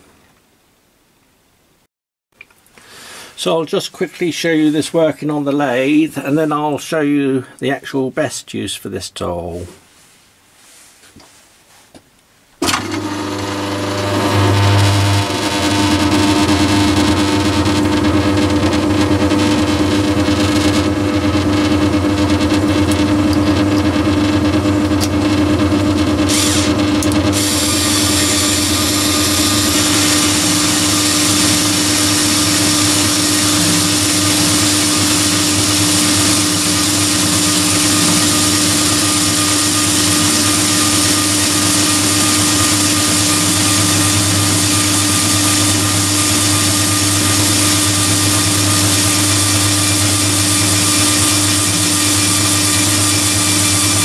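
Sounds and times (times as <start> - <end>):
tool cutting steel: 12.6 - 20.9, 26.2 - 54.0
lathe humming: 12.6 - 54.0
cordless screwdriver whirring: 26.3 - 34.6.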